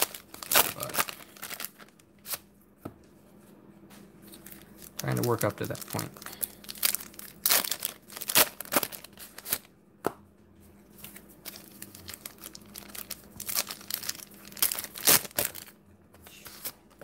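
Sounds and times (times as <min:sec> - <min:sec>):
wrappers crinkling and tearing: 0:00.0 - 0:02.4, 0:04.3 - 0:09.7, 0:11.0 - 0:15.8.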